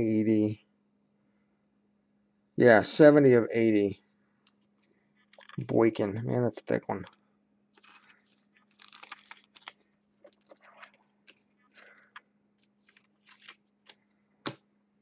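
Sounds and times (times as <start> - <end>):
faint steady hum: 0.0 - 15.0
cards rustling and scraping: 7.0 - 14.1.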